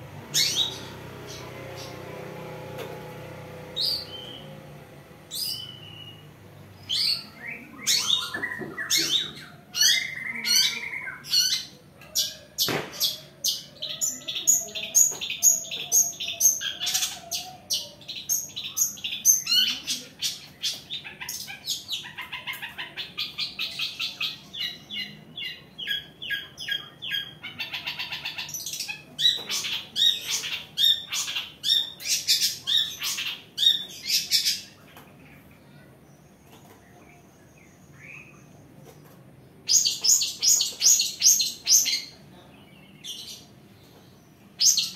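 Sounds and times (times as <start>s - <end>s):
shrike chirps and harsh calls: 5.3s - 12.5s, 39.7s - 42.2s.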